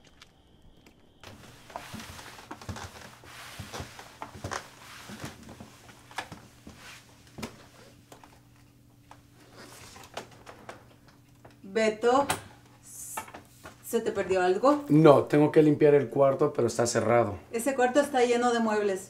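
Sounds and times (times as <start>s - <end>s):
footsteps: 0.0s - 8.4s.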